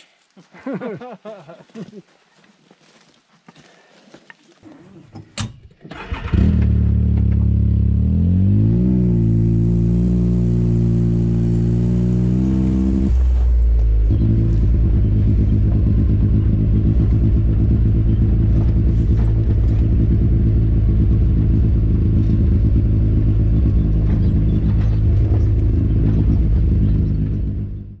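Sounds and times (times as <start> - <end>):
off-road vehicle engine running: 5.9 - 28.0
knocks and rattles from bumps: 23.3 - 27.6.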